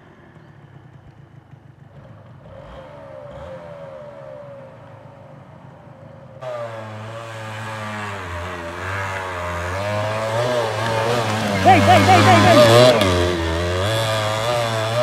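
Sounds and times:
off-road vehicle engine revving: 6.4 - 15.0.

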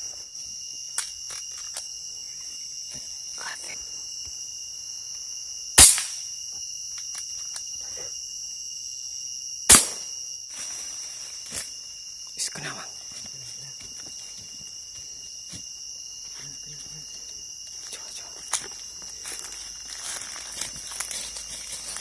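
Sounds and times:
crickets chirring: 0.0 - 22.0
rifle shots: 9.7 - 10.0.

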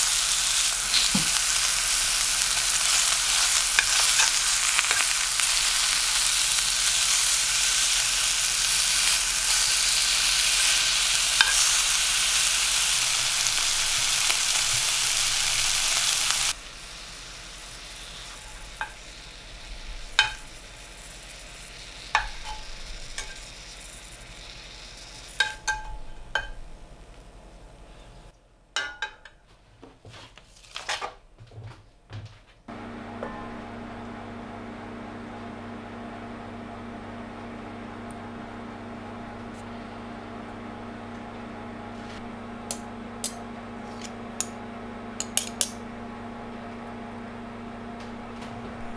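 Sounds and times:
meat sizzling in a frying pan: 0.0 - 26.8
tongs clicking on metal: 45.2 - 45.8.

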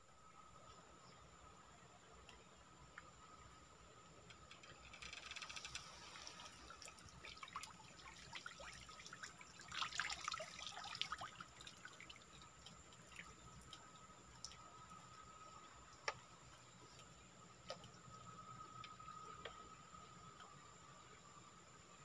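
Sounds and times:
water dripping and splashing: 4.9 - 16.3.

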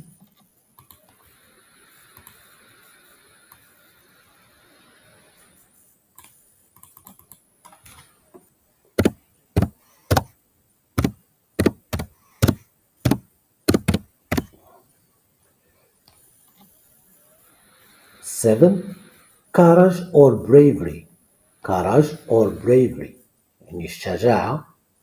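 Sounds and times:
keyboard keystrokes: 9.0 - 10.3, 11.0 - 14.5.

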